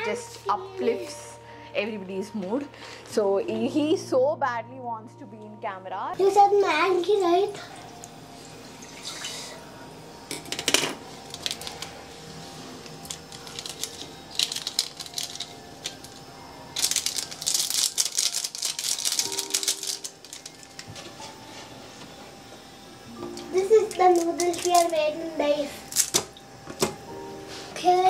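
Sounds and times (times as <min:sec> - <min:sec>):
faint background music: 0:00.0 - 0:28.0
plastic packaging crinkling: 0:11.2 - 0:12.0, 0:13.0 - 0:20.9, 0:23.8 - 0:25.0.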